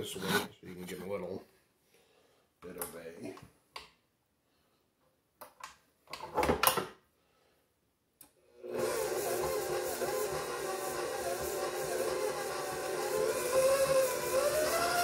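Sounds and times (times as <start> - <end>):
stand mixer motor running: 8.6 - 15.0.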